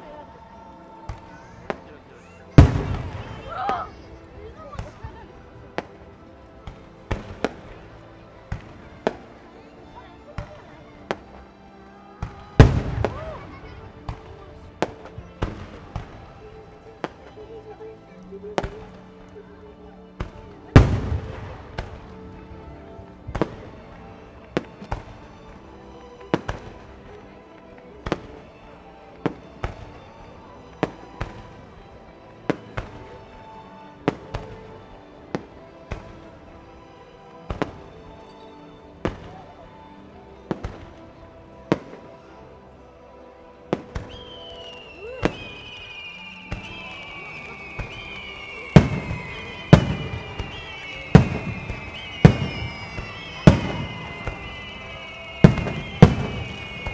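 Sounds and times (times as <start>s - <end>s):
music: 0.0s - 56.9s
fireworks bursting: 2.5s - 4.0s, 6.6s - 7.8s, 12.2s - 16.4s, 20.2s - 25.6s, 43.7s - 56.9s
deep fireworks boom: 2.6s - 3.5s, 46.5s - 56.9s.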